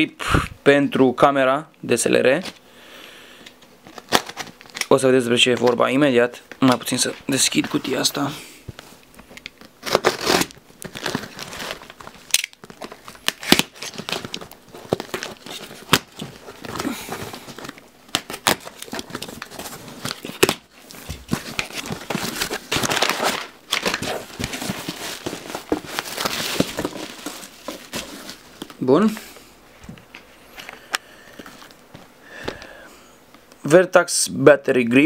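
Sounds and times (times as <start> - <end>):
packing paper crinkling and tearing: 3.8 - 8.3, 9.2 - 29.2
paper rustling: 6.5 - 29.2.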